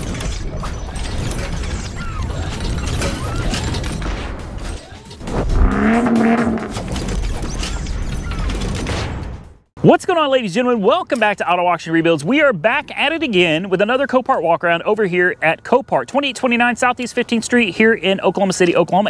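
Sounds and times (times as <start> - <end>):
loud hit: 5.2 - 7.0
whooshes: 5.2 - 7.0
pitched rumble: 5.2 - 7.2
intro music: 5.3 - 6.9.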